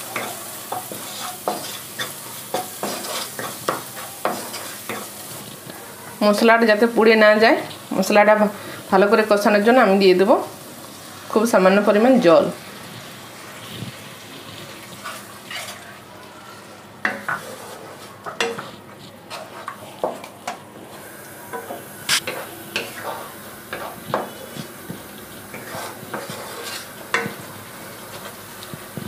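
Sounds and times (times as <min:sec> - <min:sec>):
wooden spatula scraping a pan: 0:00.0 - 0:05.8, 0:13.0 - 0:29.0
low sizzle: 0:00.0 - 0:29.0.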